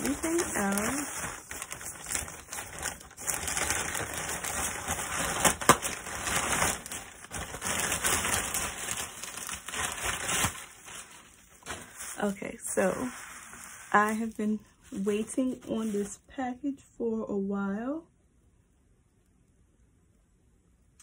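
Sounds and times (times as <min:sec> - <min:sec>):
plastic packaging crinkling: 0:00.0 - 0:16.2
sharp plastic crack: 0:02.0 - 0:10.8.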